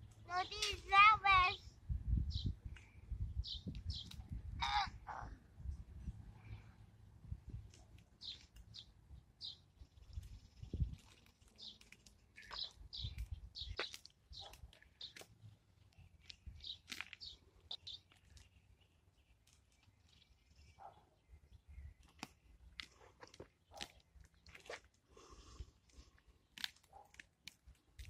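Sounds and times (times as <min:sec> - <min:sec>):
dry grass crunching: 0:10.9 - 0:20.3.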